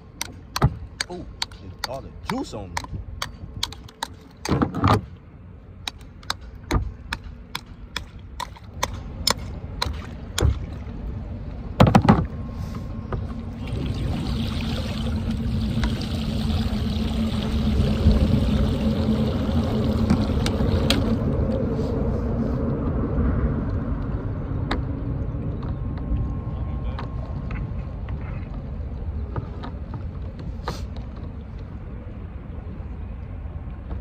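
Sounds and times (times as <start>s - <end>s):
water rushing into bucket: 13.6s - 21.2s.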